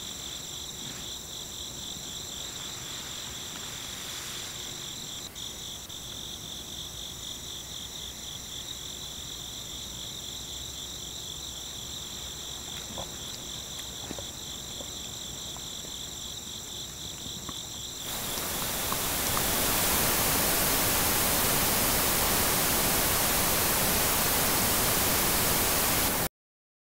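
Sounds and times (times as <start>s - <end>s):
crickets chirping: 0.0s - 26.3s
loud static hiss: 1.9s - 5.9s, 18.0s - 26.3s.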